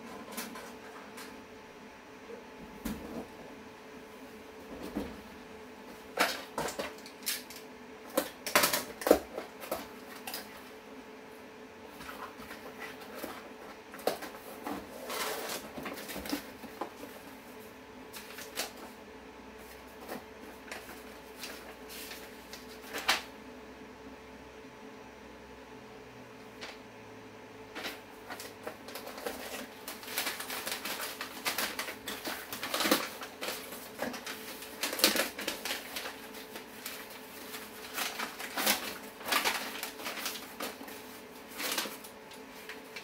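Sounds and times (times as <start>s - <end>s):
faint steady hum: 0.0s - 43.0s
plastic wrap crinkling: 27.8s - 43.0s.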